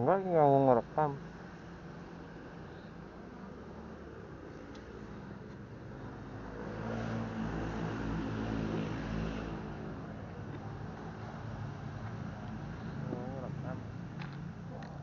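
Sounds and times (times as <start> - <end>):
vehicle engine passing by: 6.0 - 14.0.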